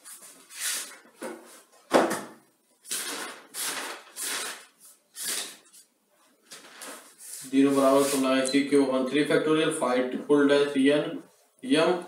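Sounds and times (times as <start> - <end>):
paper pages rustling: 2.9 - 8.3.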